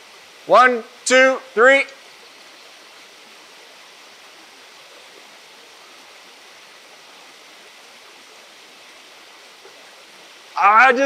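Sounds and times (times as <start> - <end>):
river rushing over stones: 0.0 - 11.0.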